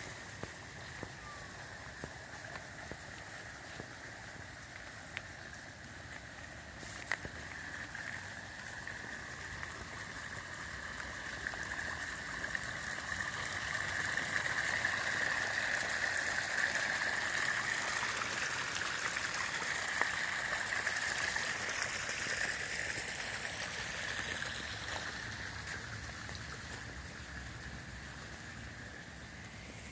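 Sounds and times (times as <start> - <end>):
water splashing over stones: 0.0 - 29.9.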